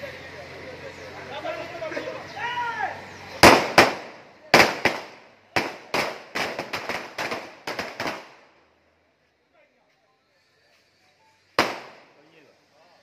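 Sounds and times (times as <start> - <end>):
firecrackers going off: 3.3 - 8.7, 11.5 - 12.4.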